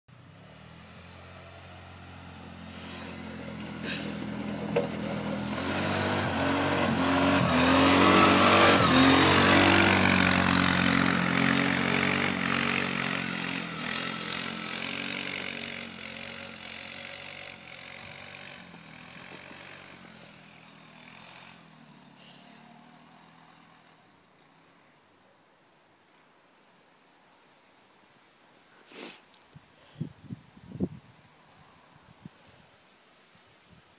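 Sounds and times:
atv engine revving: 0:00.2 - 0:24.6.

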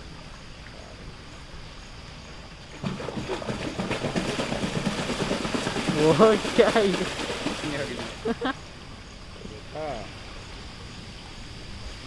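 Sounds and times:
water splashing: 0:02.6 - 0:08.6.

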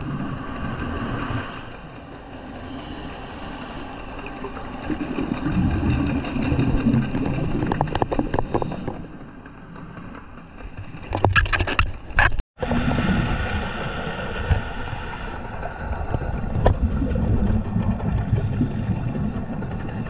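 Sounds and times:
boat engine drone underwater: 0:00.0 - 0:20.0
diver exhaling bubbles underwater: 0:12.6 - 0:20.0.

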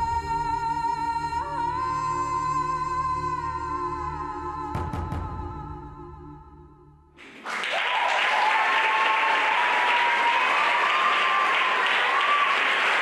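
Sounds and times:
audience applause: 0:07.2 - 0:13.0.

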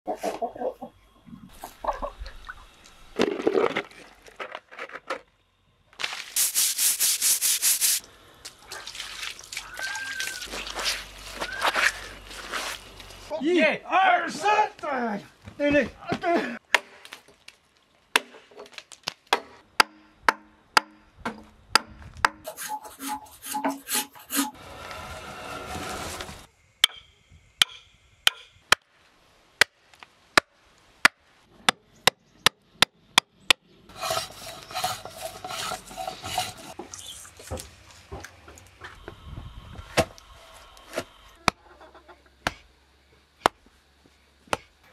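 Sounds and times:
tools striking wood: 0:26.8 - 0:28.8
rasping scraping on wood: 0:33.9 - 0:36.8.

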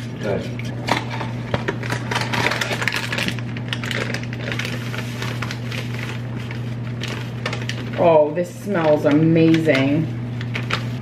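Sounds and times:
steady low hum: 0:00.0 - 0:11.0
plastic bag crinkling: 0:01.4 - 0:11.0.

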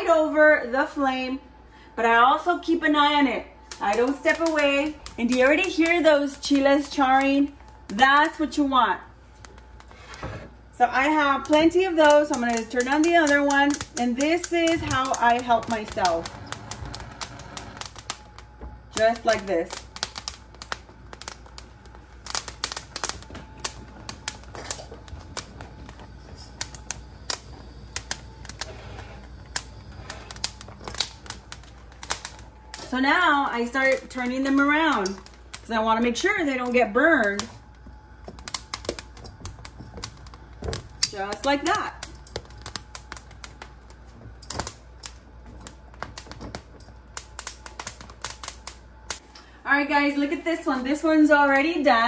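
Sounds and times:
chile skins crackling and popping: 0:03.6 - 0:49.6.

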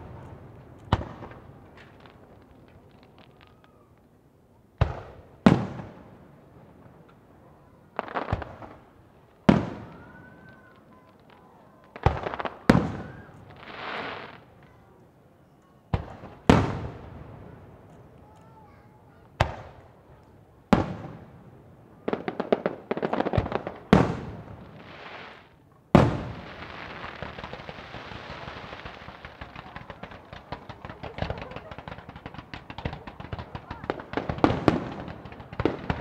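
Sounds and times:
fireworks bangs: 0:00.0 - 0:04.2, 0:04.8 - 0:14.9, 0:15.9 - 0:36.0
fireworks crackling pops: 0:00.0 - 0:04.2, 0:04.8 - 0:15.0, 0:15.9 - 0:21.4, 0:22.0 - 0:36.0.

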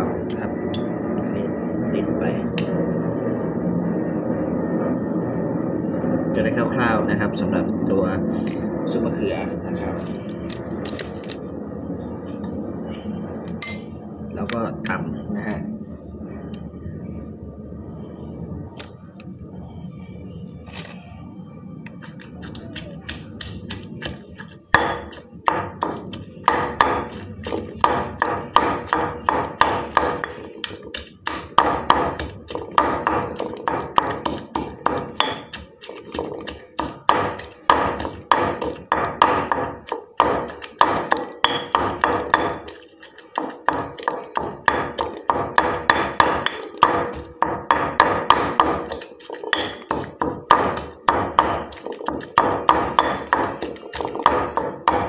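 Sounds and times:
pestle pounding in a stone mortar: 0:21.9 - 0:55.0.

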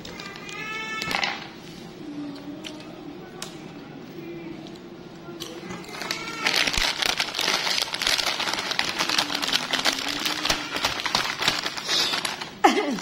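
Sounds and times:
plastic chip bag crinkling: 0:05.6 - 0:13.0.

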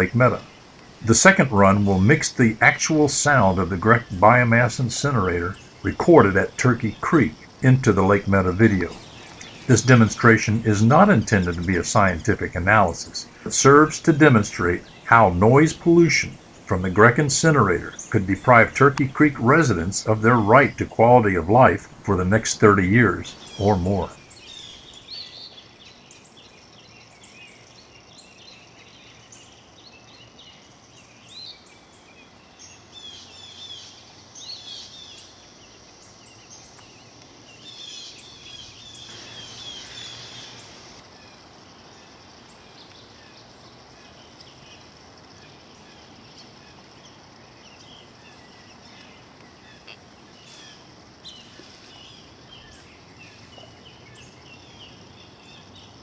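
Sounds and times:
faint low hum: 0:00.0 - 0:25.0
background hiss: 0:00.0 - 0:56.0
birds chirping and calling: 0:00.0 - 0:56.0.

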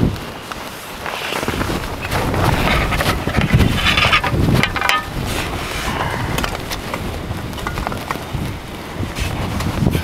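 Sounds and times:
clothing and fabric rustling: 0:00.0 - 0:10.0
snow shovel scraping and knocking: 0:01.0 - 0:08.4.

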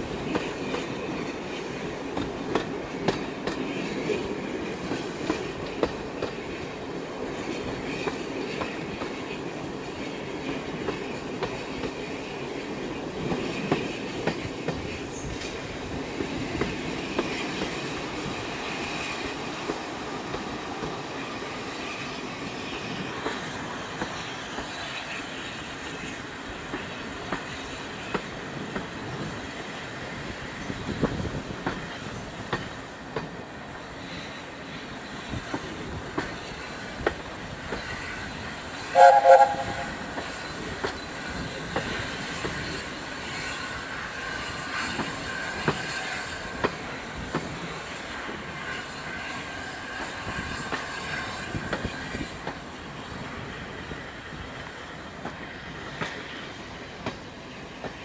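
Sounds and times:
train coach running noise: 0:00.0 - 0:58.0
steam locomotive chime whistle: 0:38.9 - 0:40.3.

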